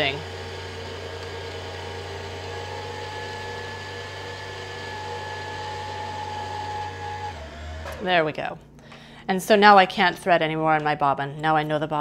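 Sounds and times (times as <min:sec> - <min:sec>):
sewing machine motor whirring: 0:00.0 - 0:08.2.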